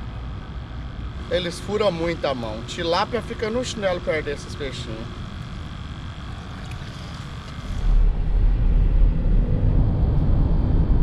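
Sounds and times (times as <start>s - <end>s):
road and tyre noise in car cabin: 0.0s - 11.0s.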